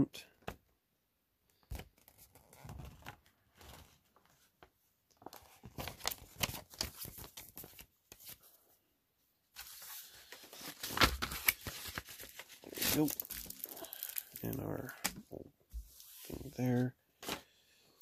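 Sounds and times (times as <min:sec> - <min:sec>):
packaging crinkling and tearing: 0:10.5 - 0:15.1.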